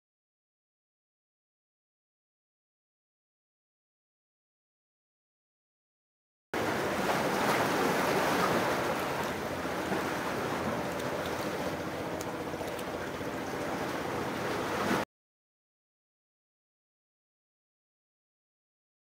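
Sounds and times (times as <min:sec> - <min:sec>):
sea surf: 0:06.6 - 0:15.1
wind: 0:06.6 - 0:15.1.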